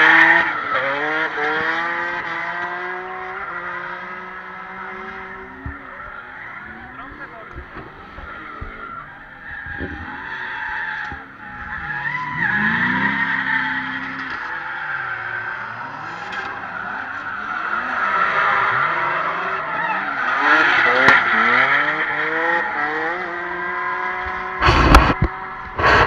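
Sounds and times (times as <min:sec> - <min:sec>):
car engines revving: 0:00.0 - 0:26.0
tyre squeal: 0:05.0 - 0:23.0
microphone handling noise: 0:24.6 - 0:26.0.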